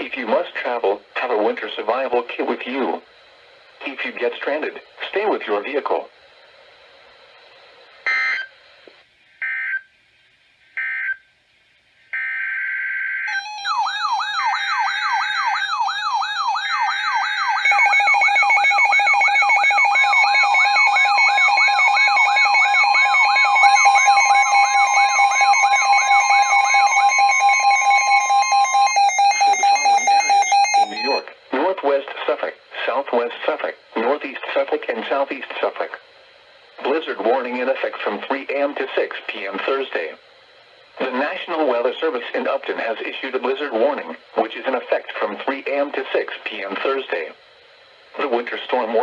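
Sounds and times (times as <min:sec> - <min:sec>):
warbling siren alarms: 0:12.2 - 0:31.2
digital data bursts: 0:13.3 - 0:36.0
rapid repeating beeps: 0:13.9 - 0:31.2
steady alert tone: 0:22.8 - 0:31.3.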